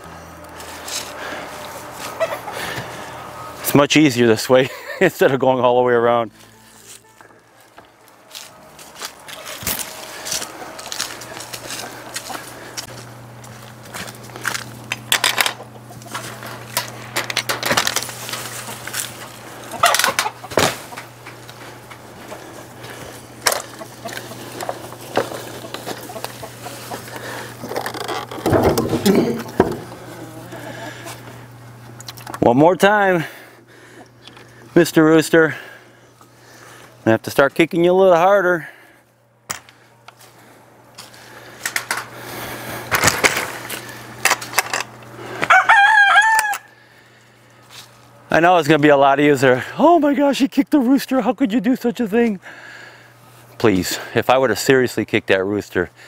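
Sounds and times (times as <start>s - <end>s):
rooster crowing: 45.4s - 46.9s.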